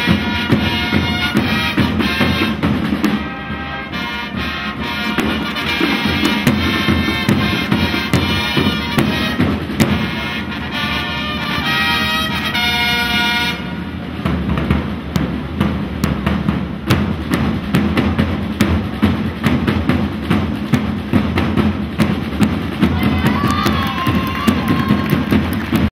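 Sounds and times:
drums beating quick rhythm: 0:00.0 - 0:10.9, 0:13.9 - 0:25.9
brass horns holding a chord: 0:00.0 - 0:14.0.

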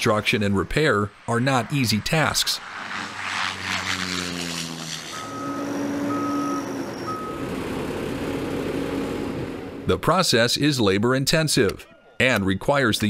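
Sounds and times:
heavy vehicle engine running: 0:04.0 - 0:09.9
backup alarm beeping: 0:05.1 - 0:07.6.

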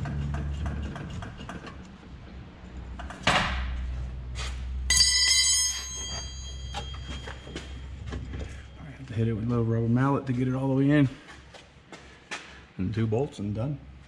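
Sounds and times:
metallic clank ringing: 0:04.9 - 0:08.8.

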